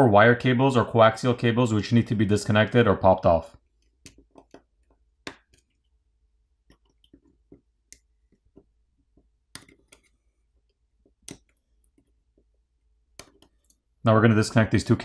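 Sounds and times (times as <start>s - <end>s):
metal tool clicking on connectors: 3.8s - 5.8s, 9.5s - 12.2s, 13.1s - 13.9s.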